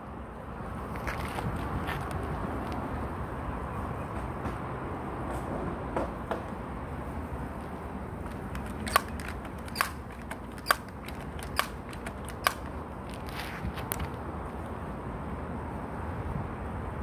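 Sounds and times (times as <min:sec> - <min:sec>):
air rifle shots: 0:08.4 - 0:12.8.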